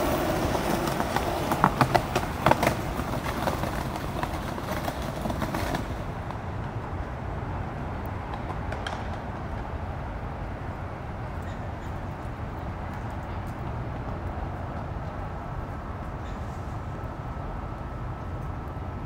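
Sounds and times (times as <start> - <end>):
skateboard clacks: 0.0 - 7.2, 8.0 - 10.0
outdoor background ambience: 0.0 - 19.0
skateboards rolling on concrete: 0.0 - 19.0.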